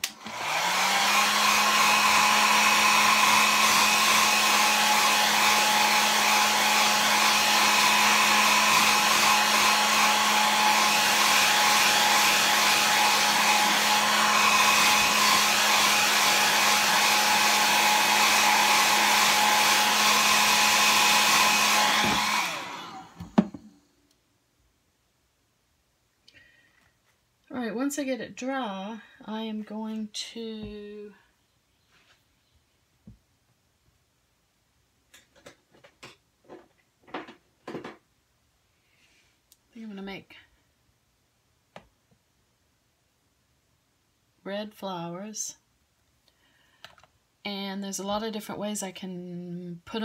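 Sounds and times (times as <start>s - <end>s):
hair dryer switch click: 0.0s - 0.4s
hair dryer running: 0.0s - 23.8s.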